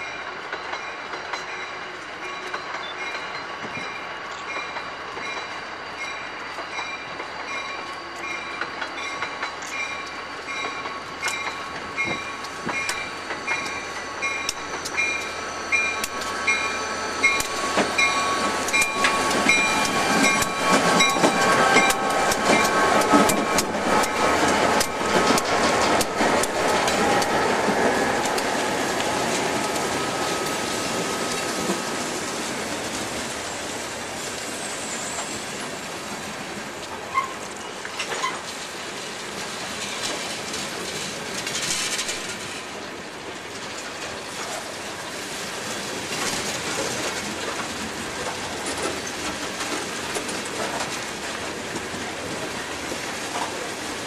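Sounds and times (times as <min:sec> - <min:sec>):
freight train rolling past: 0:00.0 - 0:54.0
diesel locomotive moving off: 0:05.4 - 0:38.3
wheels clicking over rail joints: 0:08.6 - 0:30.0, 0:39.4 - 0:44.7, 0:46.1 - 0:53.9.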